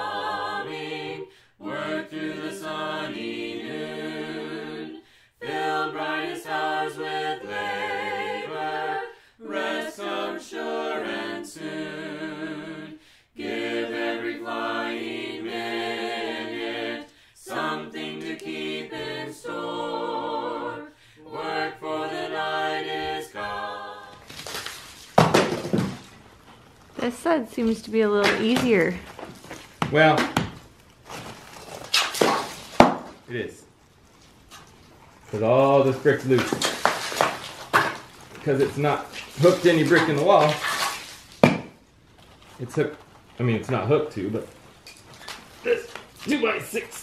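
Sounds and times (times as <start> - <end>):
a cappella group singing: 0.0 - 24.3.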